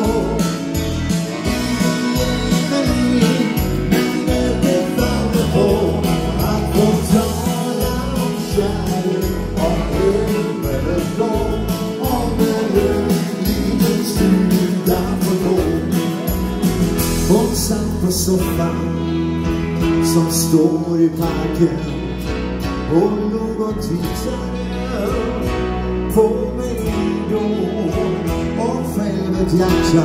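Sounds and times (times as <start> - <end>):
live dance band music: 0.0 - 30.0.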